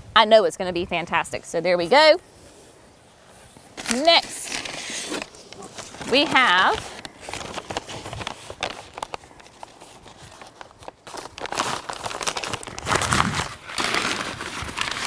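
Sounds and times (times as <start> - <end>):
paper sleeve crinkling: 3.3 - 15.0.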